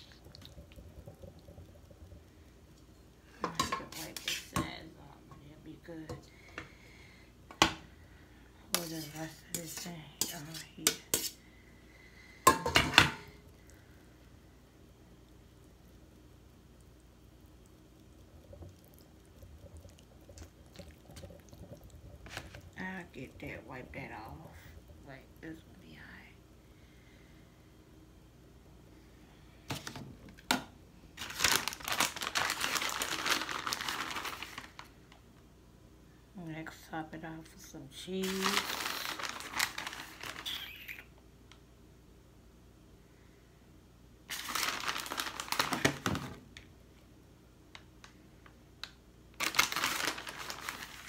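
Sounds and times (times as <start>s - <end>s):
plastic bag crinkling: 31.2s - 35.0s, 38.2s - 41.0s, 44.3s - 46.4s, 49.4s - 51.0s.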